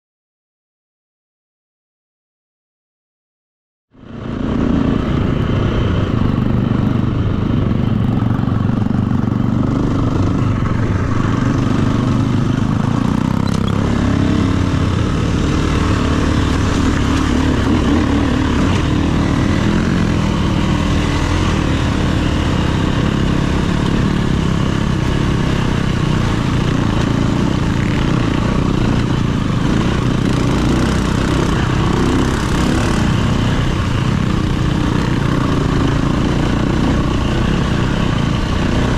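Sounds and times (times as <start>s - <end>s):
dirt bike engine revving: 4.1s - 38.9s.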